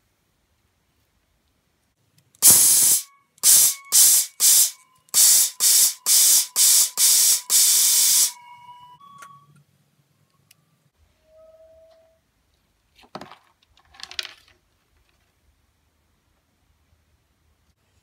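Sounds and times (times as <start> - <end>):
web shooter hissing spurts: 2.4 - 8.4.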